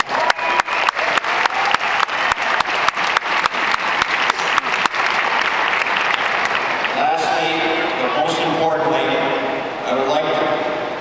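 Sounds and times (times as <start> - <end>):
close hand claps: 0.0 - 7.0
crowd applauding: 0.0 - 8.4.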